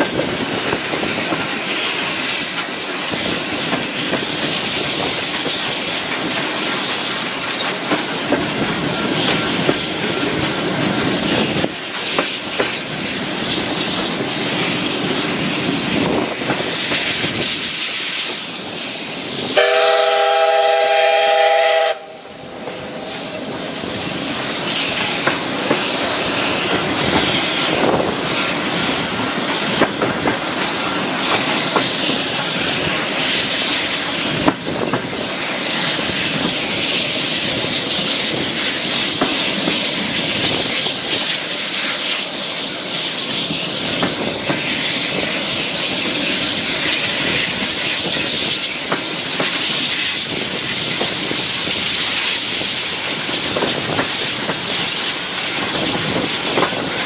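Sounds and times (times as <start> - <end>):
train rushing along rails: 0.0 - 57.0
steam locomotive whistle: 19.6 - 23.3.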